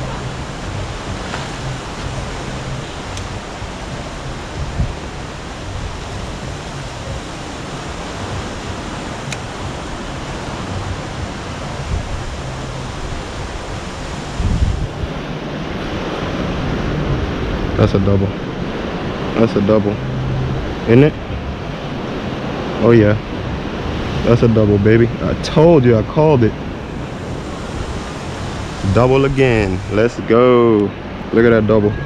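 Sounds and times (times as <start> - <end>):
ocean surf: 0.0 - 32.0
wind: 0.0 - 32.0.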